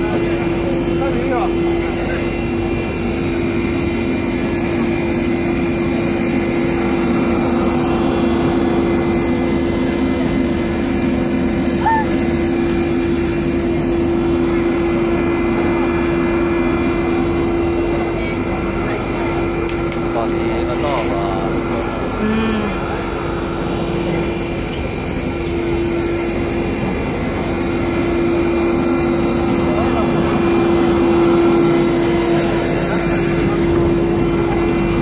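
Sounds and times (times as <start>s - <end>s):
boat engine drone: 0.0s - 35.0s.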